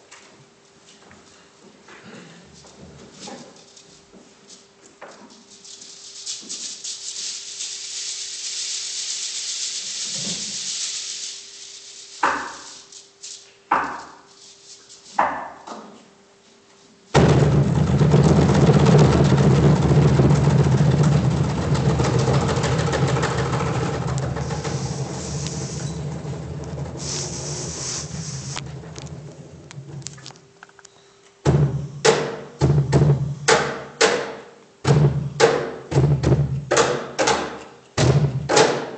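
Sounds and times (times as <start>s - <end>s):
high hissing rattle: 5.3s - 15.2s, 22.4s - 29.1s
cajon ensemble playing: 17.2s - 30.3s.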